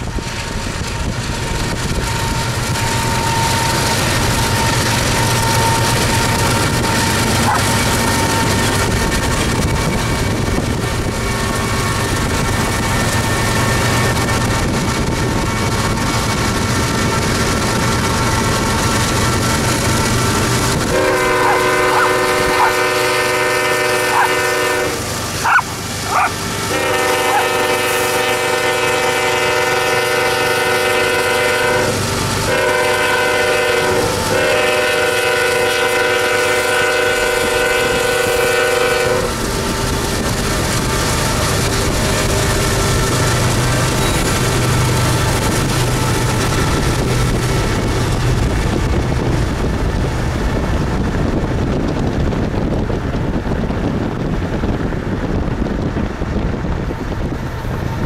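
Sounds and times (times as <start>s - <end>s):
freight train rumbling: 0.0s - 58.0s
dog barking: 7.4s - 7.7s, 21.4s - 22.7s, 25.4s - 26.4s, 27.3s - 27.5s
train air horn blasts: 20.8s - 39.5s.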